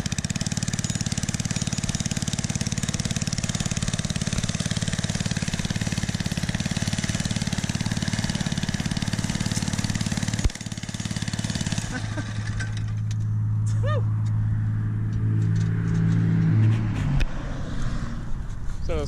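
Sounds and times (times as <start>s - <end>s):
single-cylinder engine idling: 0.0s - 13.1s.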